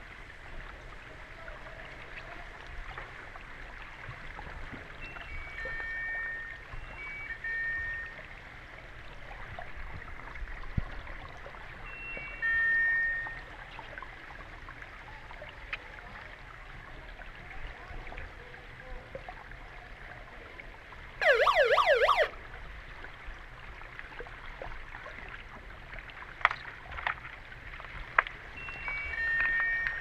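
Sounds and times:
warbling underwater siren: 21.2s - 22.4s.

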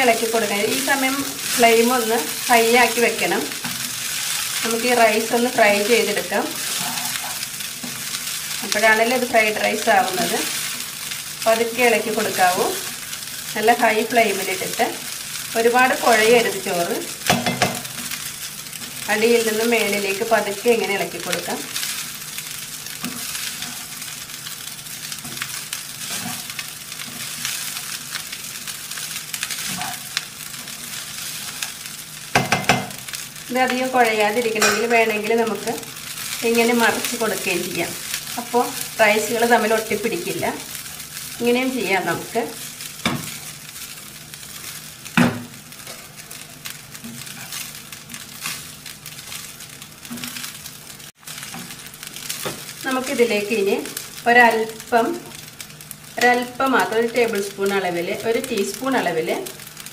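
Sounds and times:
rice sizzling in a pan: 0.0s - 59.9s
spatula scraping a pan: 3.5s - 4.8s, 6.5s - 8.6s, 21.7s - 33.2s, 45.8s - 50.6s.

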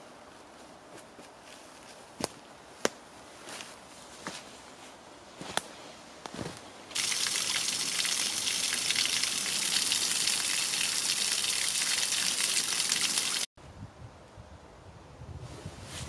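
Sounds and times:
stream flowing over stones: 7.0s - 13.5s.

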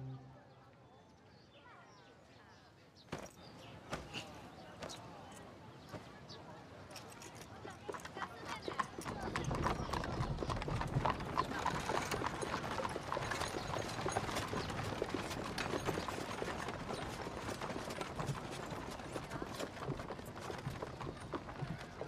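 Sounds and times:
horse hooves on pavement: 7.0s - 22.0s.

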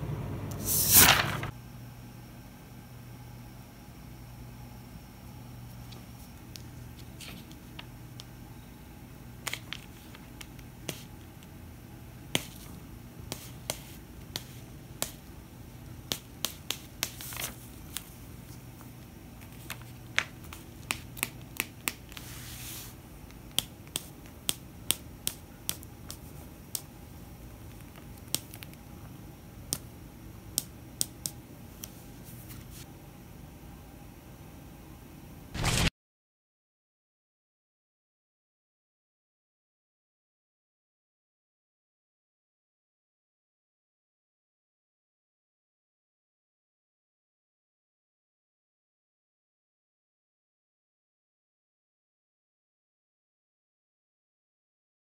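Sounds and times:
low steady room hum: 0.0s - 35.9s
paper crackling under a cat: 0.6s - 1.5s, 16.1s - 23.0s, 35.6s - 35.9s
paper rustle: 0.6s - 1.5s, 6.9s - 7.9s, 16.1s - 23.0s, 35.6s - 35.9s.

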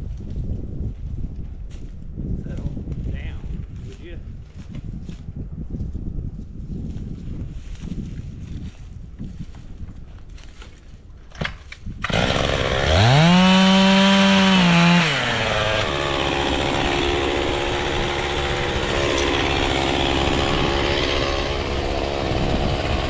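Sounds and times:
chainsaw cutting wood: 11.4s - 23.0s.

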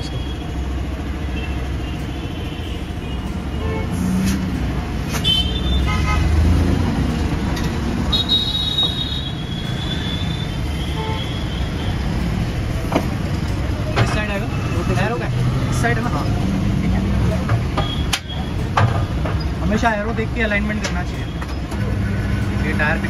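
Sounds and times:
road traffic: 0.0s - 23.0s
vehicle horns tooting: 1.3s - 4.1s, 5.1s - 6.5s, 8.0s - 12.1s, 17.7s - 18.7s.

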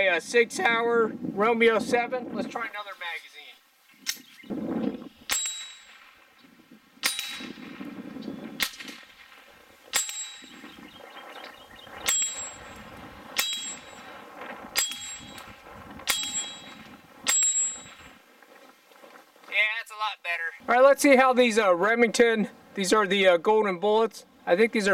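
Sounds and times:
steel target ringing: 5.3s - 6.2s, 7.0s - 7.7s, 9.9s - 10.8s, 12.0s - 18.2s.

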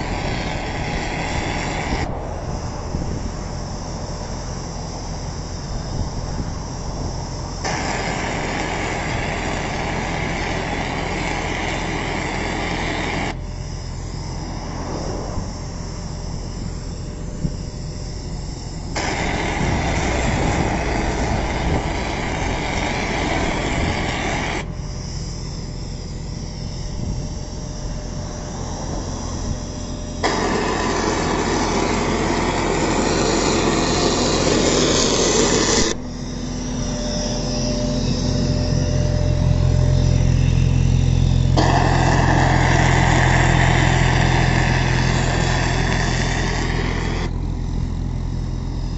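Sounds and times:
machine engine running: 0.0s - 48.9s
paint spray hissing: 18.9s - 24.7s, 30.2s - 36.0s, 41.6s - 47.3s.

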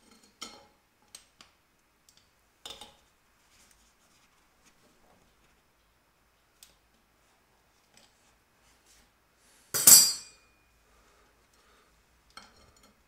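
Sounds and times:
sharp metallic clank with ring: 9.8s - 10.7s.

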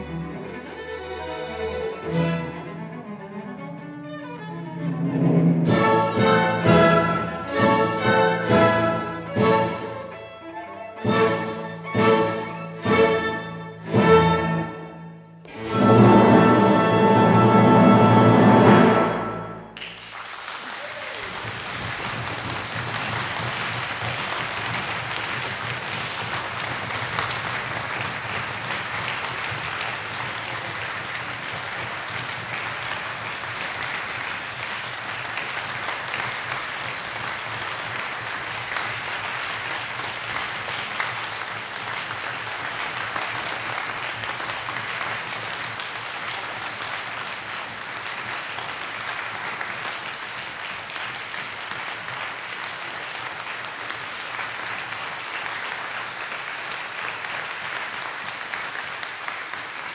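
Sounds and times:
audience applauding: 19.8s - 59.9s.

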